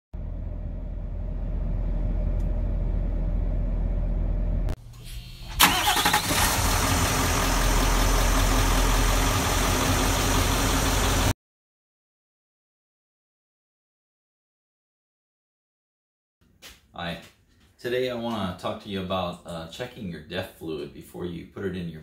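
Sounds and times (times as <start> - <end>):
diesel truck engine running: 0.2 - 4.8, 5.4 - 11.3.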